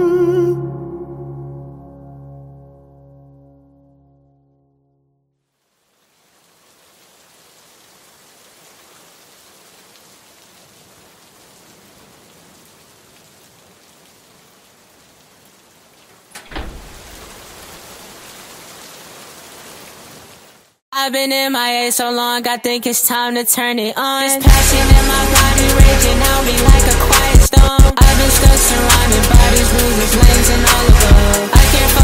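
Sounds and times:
rain hissing: 5.5s - 20.8s
thunder crack: 16.4s - 17.8s.

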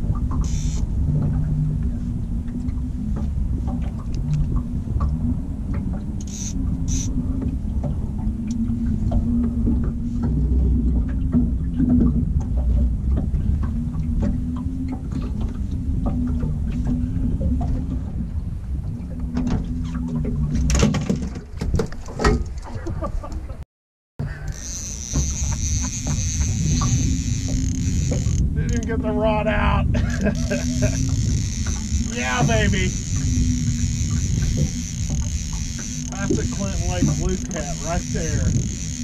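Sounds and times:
electric trolling motor humming: 0.0s - 1.2s, 4.1s - 7.5s, 24.2s - 28.9s, 30.0s - 39.0s.

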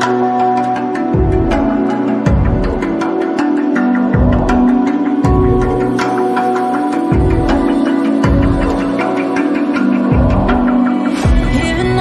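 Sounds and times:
instrumental background music: 0.0s - 12.0s
regular percussive beat: 0.0s - 12.0s.

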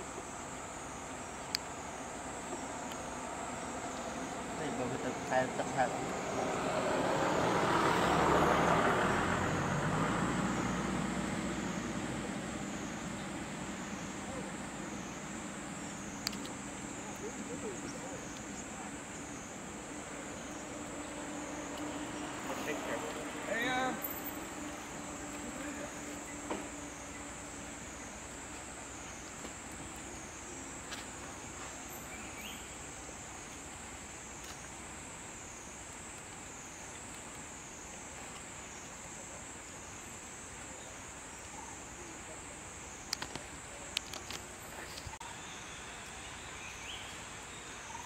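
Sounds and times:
insects droning: 0.0s - 48.0s
road vehicle passing by: 2.1s - 29.3s.

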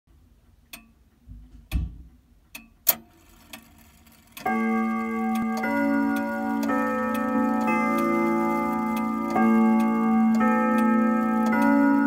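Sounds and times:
clock mechanism clicking: 2.5s - 12.0s
clock chime rods ringing: 3.2s - 12.0s.

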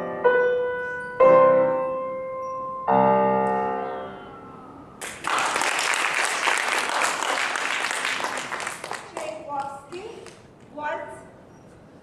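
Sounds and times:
piano chords ringing: 0.0s - 5.1s
audience applauding: 5.0s - 10.4s.

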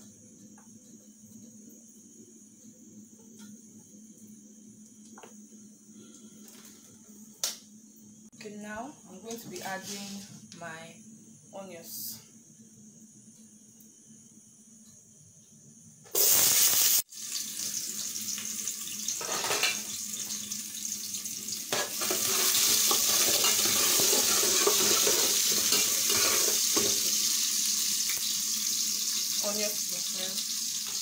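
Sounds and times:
onions sizzling in hot oil: 16.1s - 31.0s.

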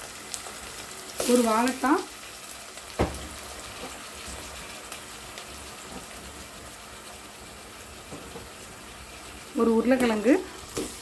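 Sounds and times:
vegetables sizzling in oil: 0.0s - 11.0s.

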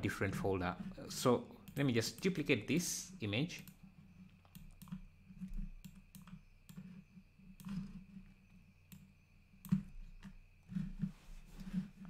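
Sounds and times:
low steady hum: 0.0s - 12.0s
mouse and keyboard clicks: 3.6s - 8.3s, 8.9s - 10.9s.

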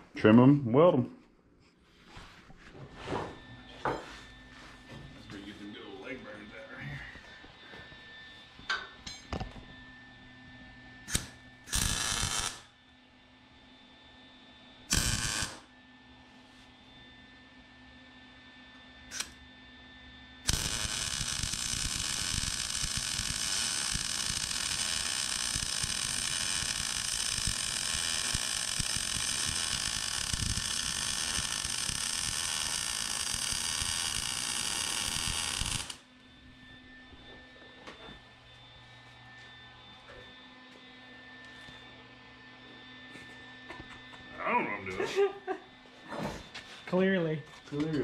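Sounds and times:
welding arc crackling: 11.1s - 12.7s, 14.9s - 15.7s, 19.1s - 19.4s, 20.5s - 36.0s.

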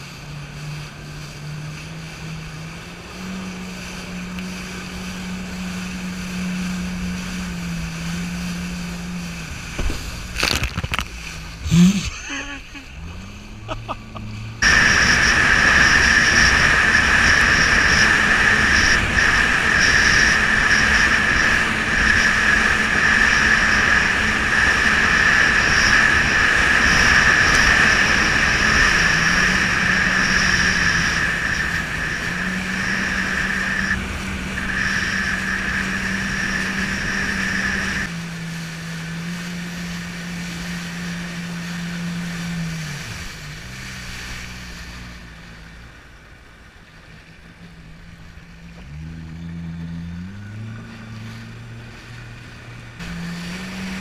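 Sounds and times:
jet ski engine whining: 0.0s - 54.0s.

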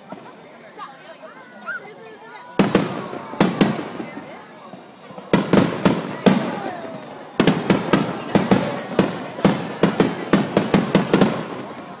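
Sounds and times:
firework shells bursting: 2.6s - 12.0s.

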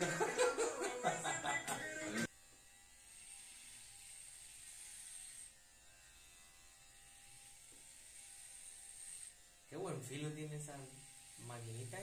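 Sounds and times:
hair clippers buzzing: 0.0s - 12.0s.

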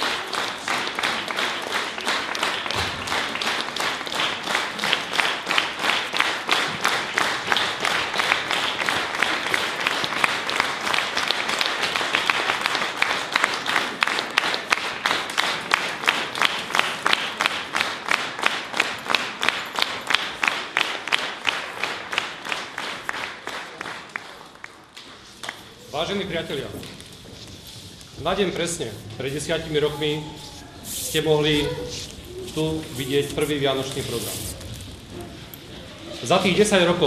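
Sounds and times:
audience clapping in unison: 0.0s - 26.6s.

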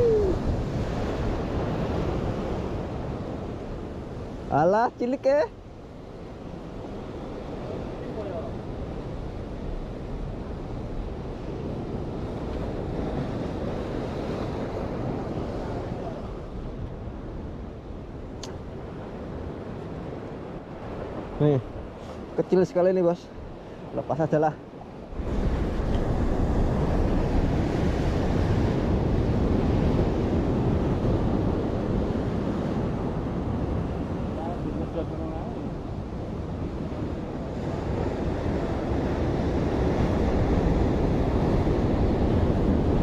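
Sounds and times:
wind buffeting microphone: 0.0s - 4.6s, 5.4s - 43.0s
sea surf washing: 0.0s - 43.0s.

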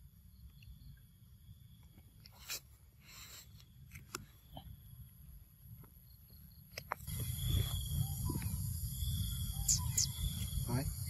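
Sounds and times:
high insect drone: 4.4s - 11.0s.

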